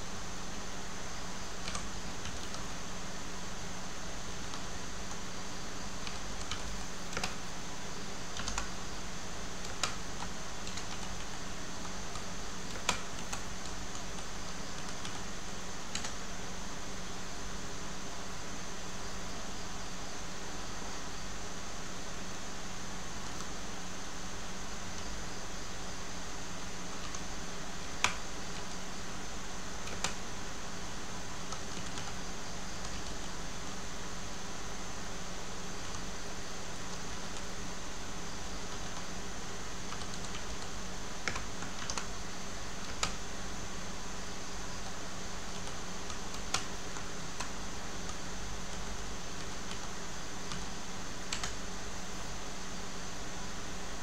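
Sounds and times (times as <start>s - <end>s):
low hum and hiss: 0.0s - 54.0s
keyboard keystrokes: 1.6s - 2.6s, 6.0s - 7.4s, 8.3s - 8.7s, 9.6s - 11.4s, 12.1s - 15.2s, 29.8s - 30.2s, 31.5s - 32.2s, 39.9s - 42.1s, 42.8s - 43.2s, 44.8s - 48.8s, 51.3s - 51.6s.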